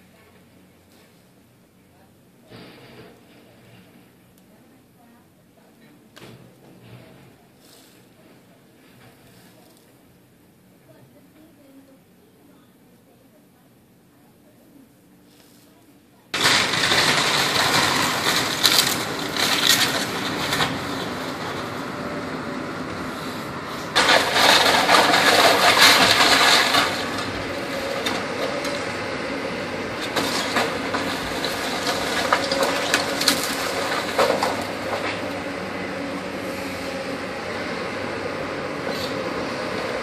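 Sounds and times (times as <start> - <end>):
debris cracking and crashing: 16.3 - 23.0, 23.8 - 36.3
falling debris crash: 16.3 - 37.2
excavator engine running: 16.3 - 40.0.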